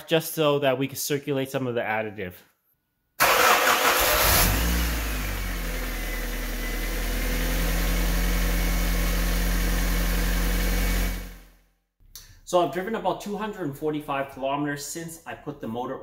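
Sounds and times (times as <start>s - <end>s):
car engine starting and idling: 3.2s - 11.6s.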